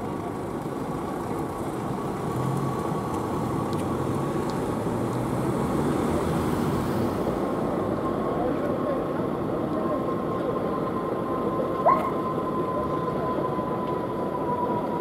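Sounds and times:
van engine driving off: 0.0 - 8.5.

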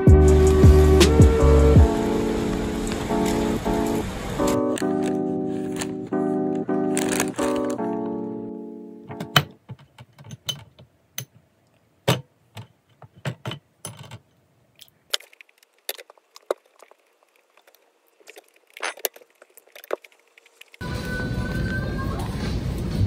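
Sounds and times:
small hard objects clicking and clattering: 6.9 - 7.9, 14.8 - 20.8.

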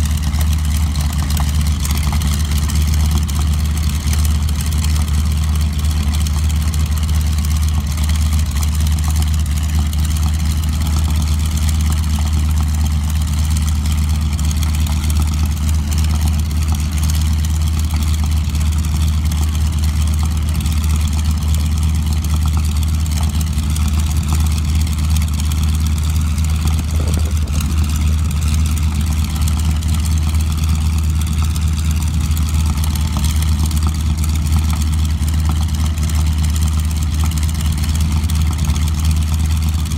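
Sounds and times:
propeller plane engine droning: 0.0 - 39.9.

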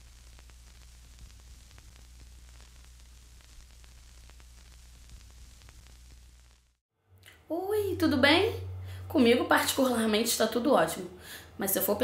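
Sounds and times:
static hiss: 0.0 - 6.8
crackling clicks: 0.0 - 7.4
low electrical hum: 0.0 - 12.0.

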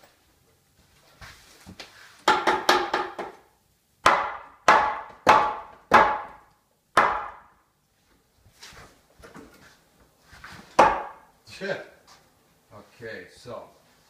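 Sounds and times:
hammer striking wooden post: 2.2 - 3.4, 4.0 - 7.5, 10.8 - 11.3.

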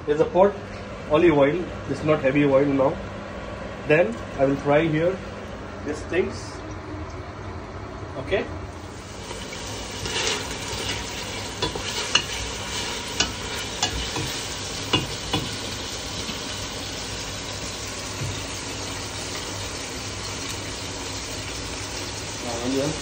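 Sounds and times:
onions sizzling in oil: 8.7 - 23.0.

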